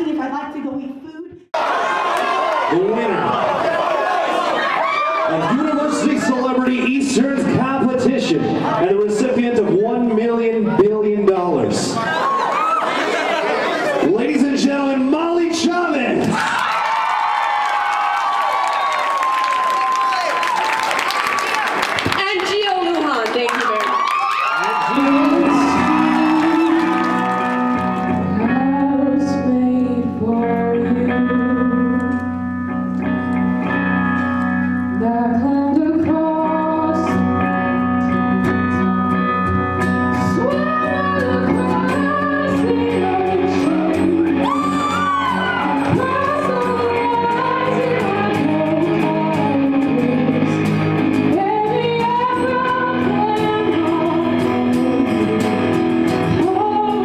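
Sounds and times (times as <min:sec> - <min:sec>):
electric guitar: 0:23.2 - 0:57.0
woman singing: 0:24.8 - 0:32.2, 0:34.9 - 0:37.4, 0:40.2 - 0:57.0.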